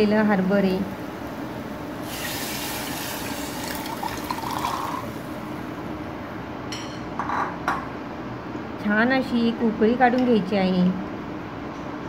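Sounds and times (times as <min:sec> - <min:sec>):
liquid pouring and splashing: 0:02.0 - 0:05.2.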